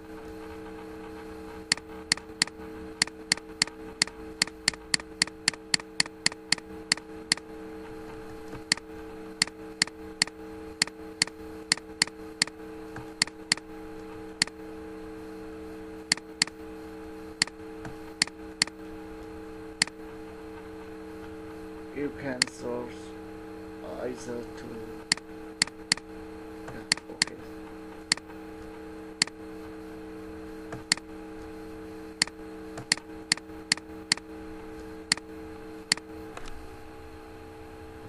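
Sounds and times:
steady electrical hum: 0.0s - 38.0s
computer mouse clicking: 1.7s - 7.5s, 8.5s - 13.7s, 16.1s - 16.6s, 25.1s - 26.1s, 26.7s - 27.4s, 28.1s - 28.3s, 30.7s - 31.0s, 32.2s - 34.3s, 35.9s - 36.6s.

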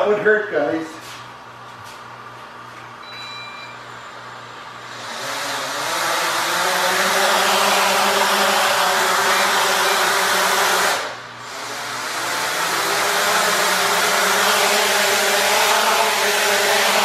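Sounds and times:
drone propellers whirring: 4.8s - 17.0s.

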